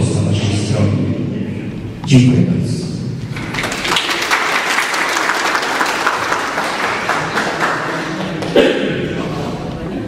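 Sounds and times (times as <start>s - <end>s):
audience applauding: 3.3s - 8.6s.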